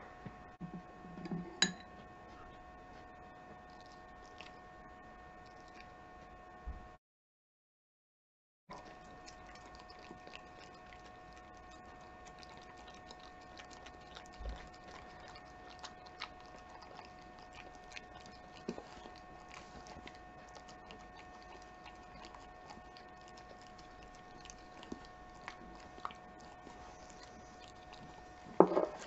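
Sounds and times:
dog chewing and licking: 3.5s - 4.6s, 8.7s - 29.0s.

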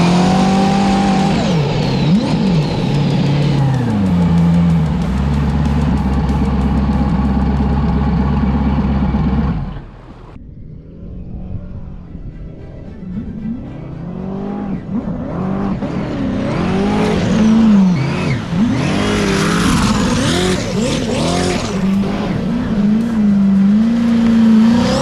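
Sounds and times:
jet ski engine revving: 13.3s - 25.0s.

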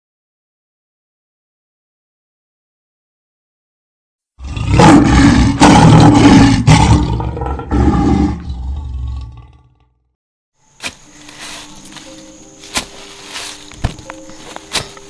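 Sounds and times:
animal roaring: 4.4s - 10.0s.

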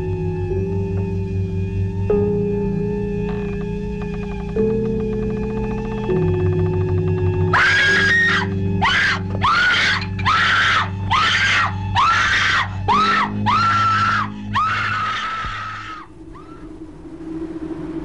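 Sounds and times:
music with low drone: 0.0s - 18.0s
shrill scream-like cries: 7.5s - 16.6s.

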